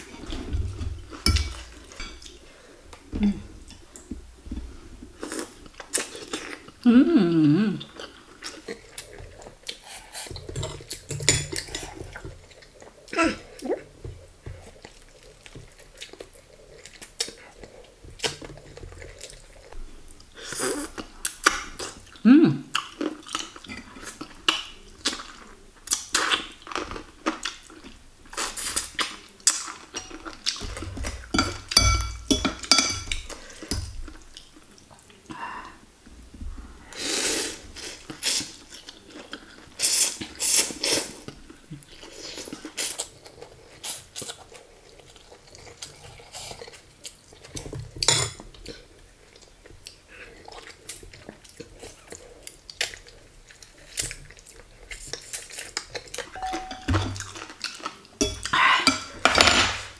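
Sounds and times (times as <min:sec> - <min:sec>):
cutlery clinking on ceramic bowl: 0:01.2 - 0:02.3, 0:31.0 - 0:33.9, 0:56.4 - 0:57.5, 0:58.2 - 0:59.9
chewing and lip-smacking: 0:37.8 - 0:47.8, 0:48.4 - 0:56.4, 0:57.0 - 0:59.2.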